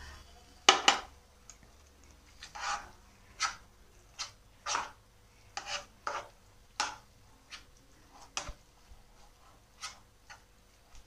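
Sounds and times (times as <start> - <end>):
spatula scraping dough in a pan: 2.2 - 11.0.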